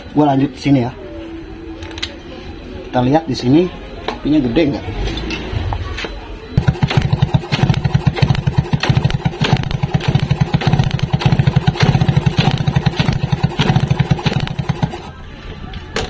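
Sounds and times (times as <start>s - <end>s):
motorcycle engine turning over: 6.6s - 15.2s.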